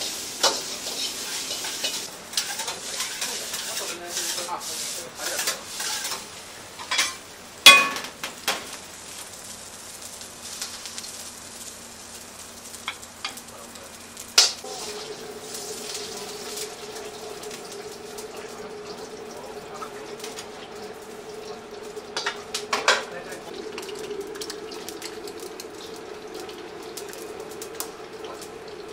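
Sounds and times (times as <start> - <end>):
faint sizzle: 0.0 - 28.9
metal ladle scraping a wok: 0.5 - 6.3.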